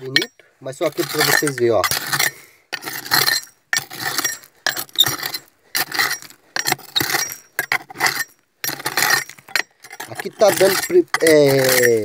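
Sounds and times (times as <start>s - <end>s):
hand tool scraping rock: 0.0s - 12.0s
stone fragments clinking: 0.0s - 12.0s.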